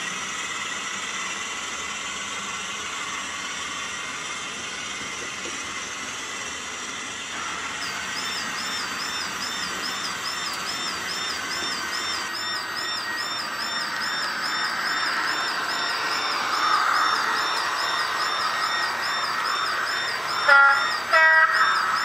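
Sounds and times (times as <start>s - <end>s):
model train motors whirring: 0.0s - 22.0s
warbling electronic tone: 7.4s - 22.0s.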